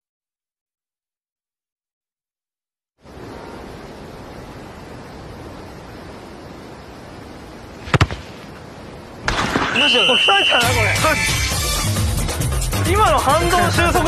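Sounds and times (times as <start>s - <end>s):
soccer ball kicked: 7.8s - 8.4s.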